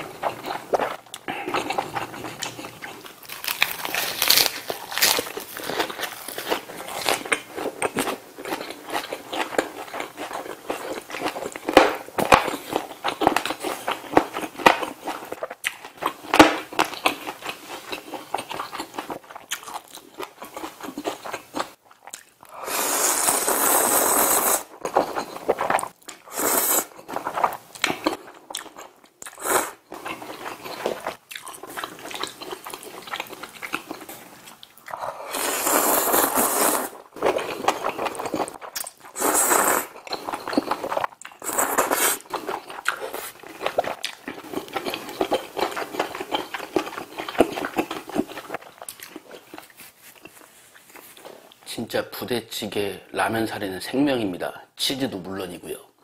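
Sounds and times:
wet chewing with crisp crunches: 0:00.0 - 0:22.6, 0:24.5 - 0:51.7
slurping noodles: 0:22.5 - 0:27.6, 0:29.3 - 0:31.1, 0:34.9 - 0:48.6.

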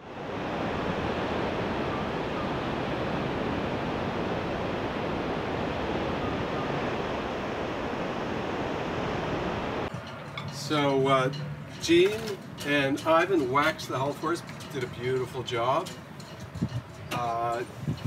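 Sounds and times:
sea surf: 0:00.0 - 0:11.3
wind: 0:00.0 - 0:18.0.

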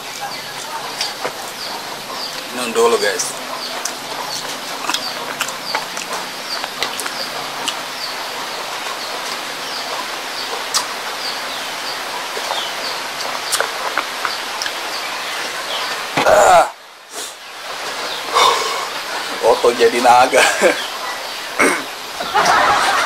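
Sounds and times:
rain hissing: 0:00.0 - 0:23.0.

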